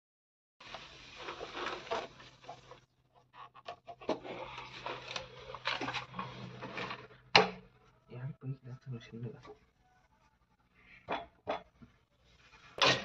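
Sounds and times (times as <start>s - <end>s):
hands rustling plastic pipe fittings: 0.6s - 7.4s.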